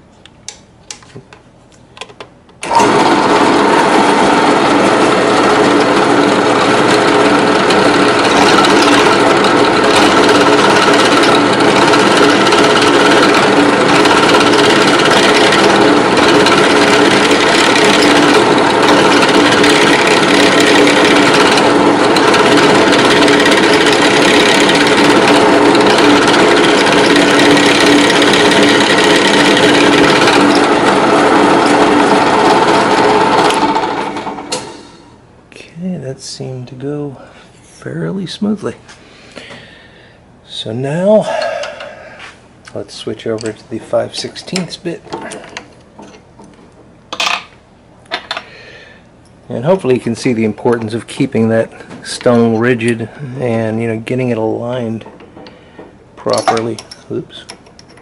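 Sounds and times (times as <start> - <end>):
drill press drilling: 2.6 - 35.0.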